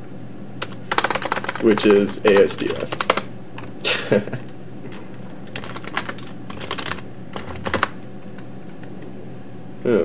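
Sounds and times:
typing on computer keyboard: 0:00.6 - 0:03.7, 0:05.4 - 0:08.4.

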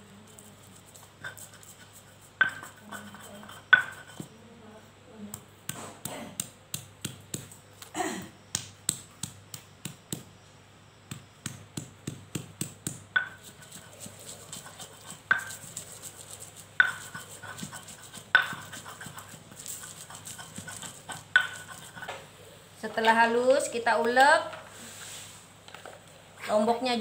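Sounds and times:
stone scraping on stone: 0:00.4 - 0:04.3, 0:13.2 - 0:22.2
stone pestle pounding: 0:01.2 - 0:04.3, 0:05.6 - 0:07.6, 0:11.1 - 0:22.2.

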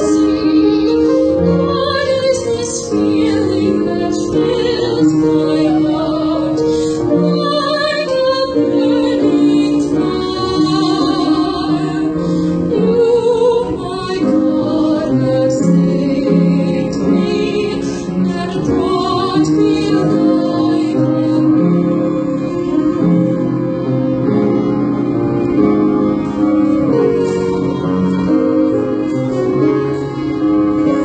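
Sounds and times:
woman singing with vibrato: 0:00.0 - 0:23.5
instrumental accompaniment: 0:00.0 - 0:31.0.

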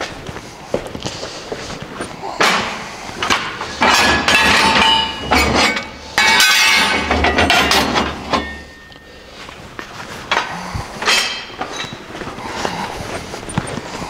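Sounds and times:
steel rails clanking: 0:02.4 - 0:09.2, 0:10.2 - 0:12.7.

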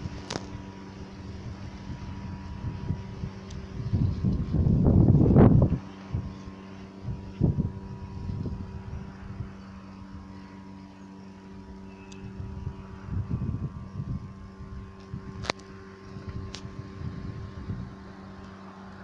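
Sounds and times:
wind gusting on microphone: 0:00.0 - 0:10.4, 0:11.6 - 0:18.4
machine hum: 0:00.0 - 0:19.0.

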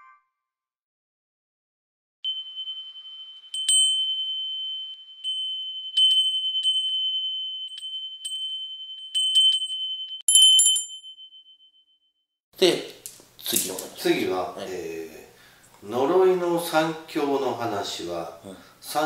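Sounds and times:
high chime ringing: 0:02.2 - 0:12.0.

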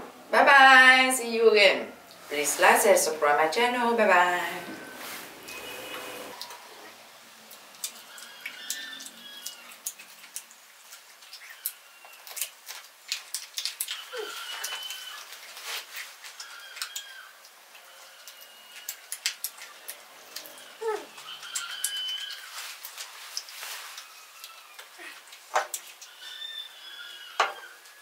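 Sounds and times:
birds chirping: 0:25.8 - 0:28.0.

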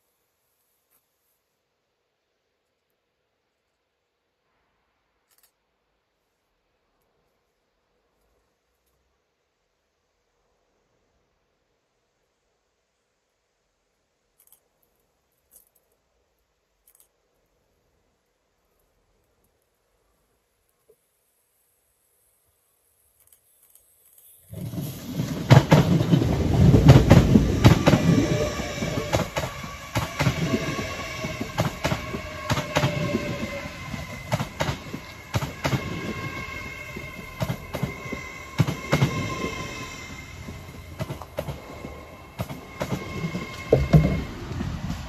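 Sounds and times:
train whine: 0:24.5 - 0:45.0
wheels clicking over rail joints: 0:24.5 - 0:45.0.

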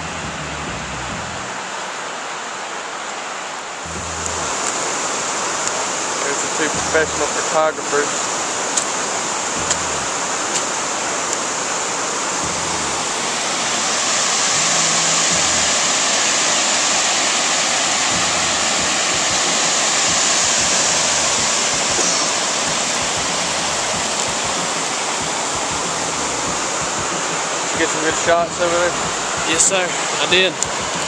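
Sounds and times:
waterfall rushing: 0:00.0 - 0:31.0.

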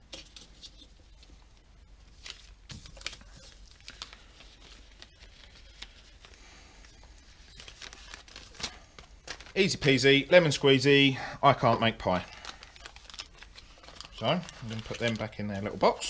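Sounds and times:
plastic bag crinkling: 0:02.1 - 0:10.7, 0:11.9 - 0:16.0.

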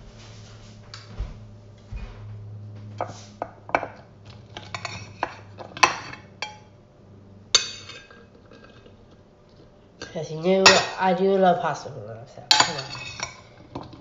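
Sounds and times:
low hum: 0:00.0 - 0:10.0
metal spoon clinking dishes: 0:07.6 - 0:08.2, 0:12.5 - 0:13.5.

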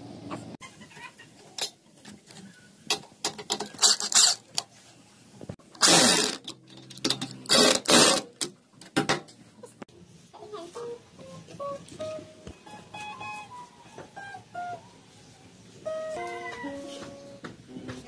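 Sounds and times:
power drill driving a screw: 0:05.8 - 0:06.4.

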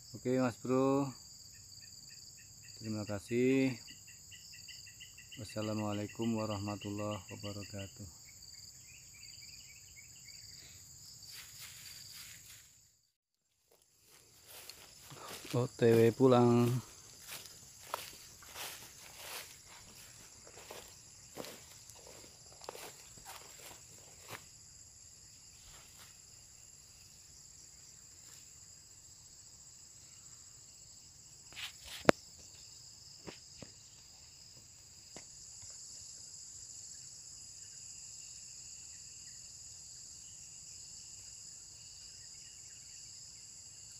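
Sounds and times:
high-pitched insect chorus: 0:00.0 - 0:13.1, 0:13.7 - 0:43.9
footsteps through grass: 0:11.3 - 0:12.8, 0:13.4 - 0:24.7, 0:25.4 - 0:26.5.

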